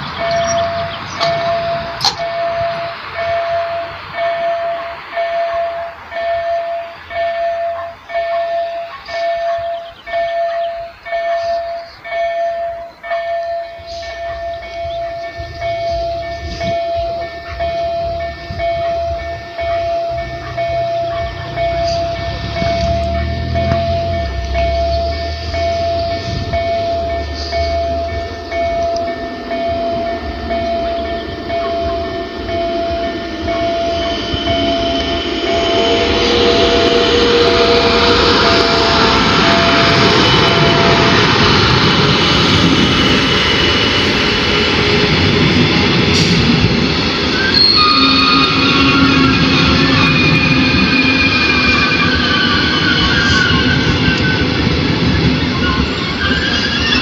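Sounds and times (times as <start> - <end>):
level crossing warning beeps: 0.1 - 42.4
low rumble: 14.7 - 47.4
steady rushing noise: 21.3 - 56.3.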